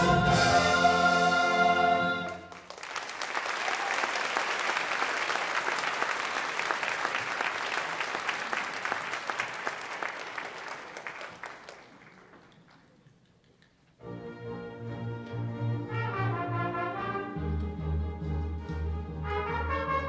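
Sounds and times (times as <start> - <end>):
orchestra and singers holding chord: 0.0 - 2.6
audience applause: 2.3 - 13.7.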